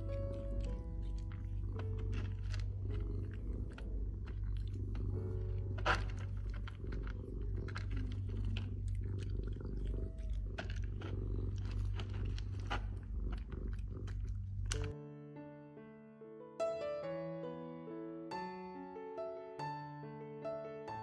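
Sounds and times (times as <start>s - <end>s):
cat crunching dry kibble: 0.0s - 15.0s
cat purring: 0.0s - 15.0s.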